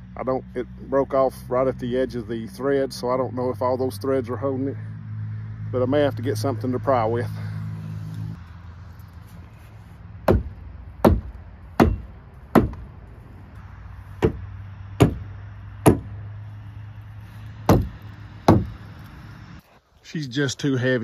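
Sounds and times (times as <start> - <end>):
hammer blows on wood: 14.2 - 16.2, 17.7 - 18.8.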